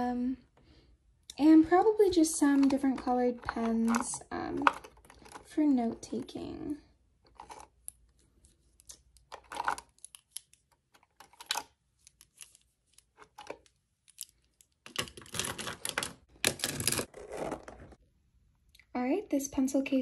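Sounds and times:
pens rustling and clattering: 1.8s - 6.5s, 7.2s - 18.0s
plastic pens clicking and rattling: 2.1s - 6.3s, 8.9s - 12.4s, 13.0s - 17.1s.

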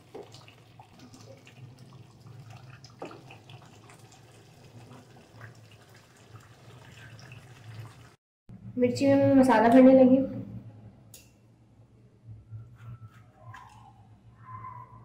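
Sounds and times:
gravy simmering in a pan: 0.0s - 8.2s.

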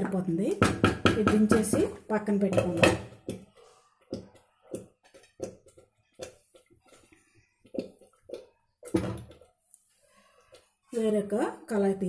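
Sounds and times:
steel pan and glass lid knocking: 0.6s - 3.2s.

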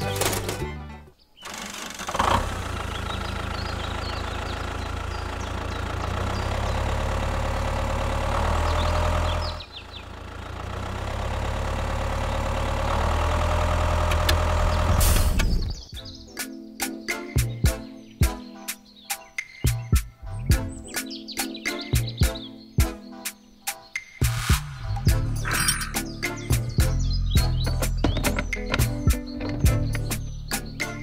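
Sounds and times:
diesel tractor engine idling: 1.4s - 15.7s.

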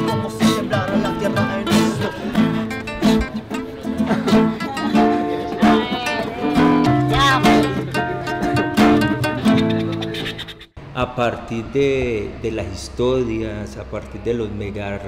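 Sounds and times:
acoustic guitar music: 0.0s - 10.8s.

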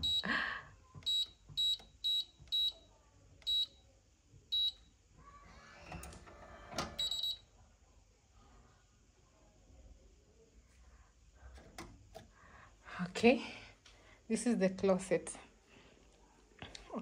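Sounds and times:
keypad beeping: 0.0s - 0.2s, 1.0s - 2.8s, 3.4s - 3.8s, 4.5s - 4.8s, 6.8s - 7.4s
longer beep: 0.0s - 0.3s, 7.0s - 7.4s.

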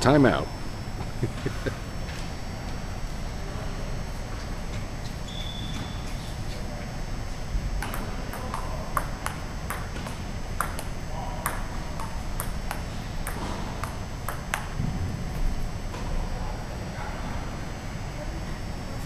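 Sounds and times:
table tennis ball clicking: 7.8s - 14.8s.

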